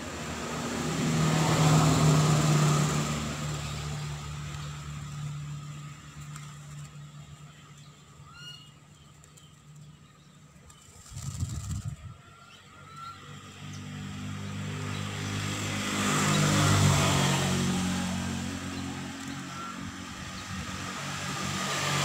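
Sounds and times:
vehicle passing: 0.0 - 7.7, 12.7 - 22.0
high bird chirp: 7.7 - 13.9.

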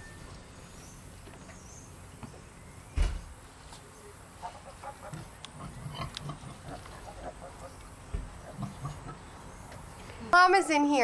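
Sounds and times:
loud low thump: 3.0 - 3.4
faint farm animal calls: 3.4 - 10.4.

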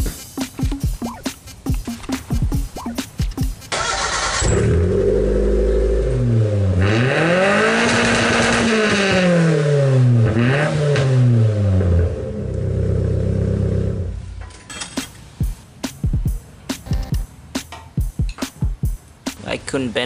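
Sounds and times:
car engine revving: 3.7 - 14.2.

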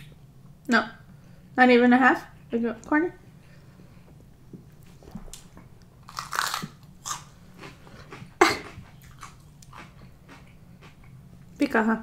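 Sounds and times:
crunchy bites and chewing: 5.3 - 11.1.

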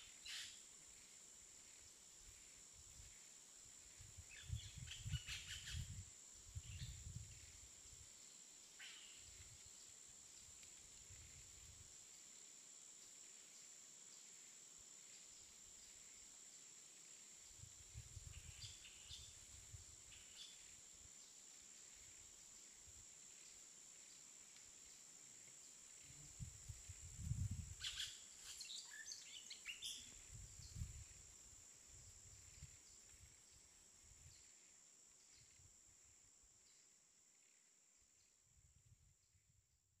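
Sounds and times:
high insect drone: 0.0 - 38.6
bird chirps: 27.8 - 30.2.

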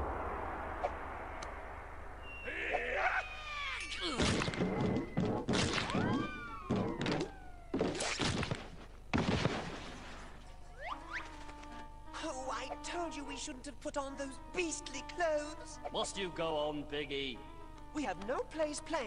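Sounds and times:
cartoon thuds and whacks: 4.1 - 9.8.

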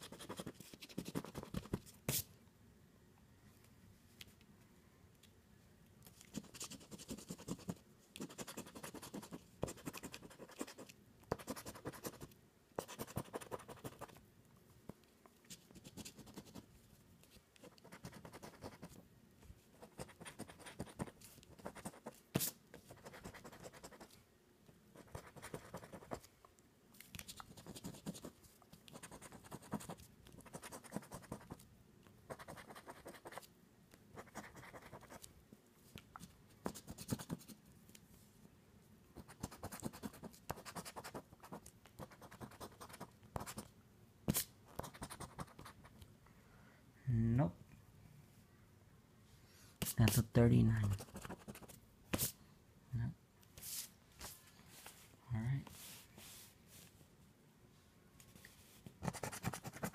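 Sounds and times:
scratching lottery ticket: 6.3 - 14.2, 19.8 - 22.2, 27.3 - 31.6, 59.0 - 59.9.

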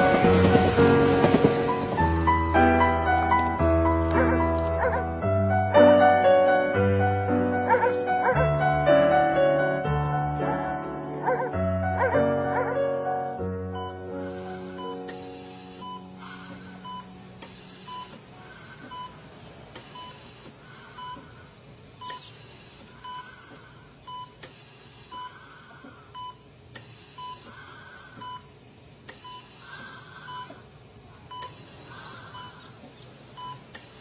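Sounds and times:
patient monitor beeping: 13.0 - 19.2, 19.8 - 21.4, 22.0 - 22.4, 23.0 - 24.4, 25.1 - 25.4, 26.1 - 27.5, 28.1 - 30.6, 31.3 - 31.7, 32.3 - 32.6, 33.4 - 33.8
ventilator soft hiss: 13.6 - 34.0.

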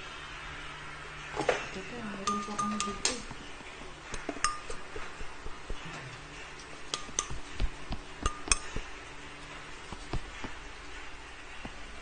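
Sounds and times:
cup clinking: 4.3 - 4.8.

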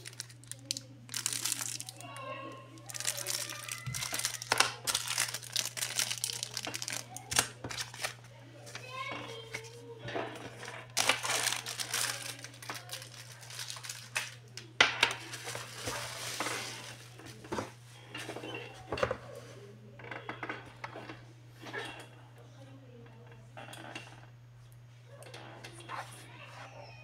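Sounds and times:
bubble wrap crinkling: 0.0 - 9.8, 10.4 - 17.8.

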